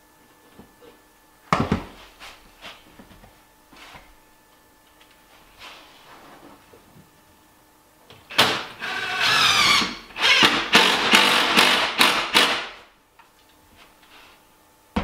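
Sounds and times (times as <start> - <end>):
power driver driving screws into wood: 8.3 - 12.7.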